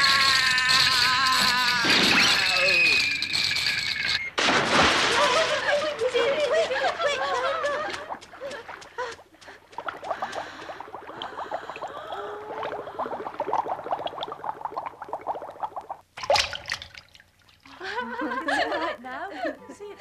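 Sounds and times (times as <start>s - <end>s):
cartoon children laughing: 5.1s - 8.7s.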